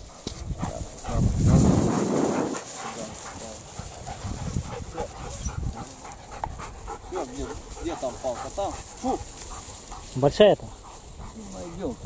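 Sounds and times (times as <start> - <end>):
microphone wind rumble: 0.0 - 7.8.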